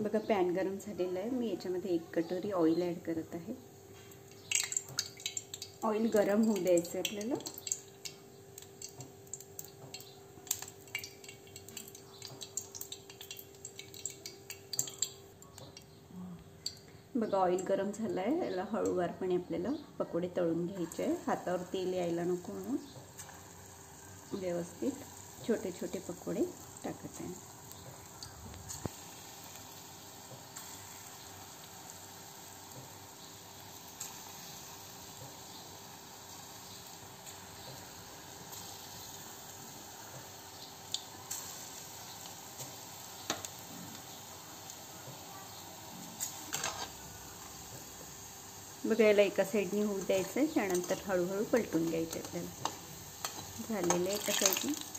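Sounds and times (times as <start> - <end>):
batter sizzling in hot oil: 0.0 - 16.0, 20.7 - 54.9
small ticks: 4.2 - 17.0.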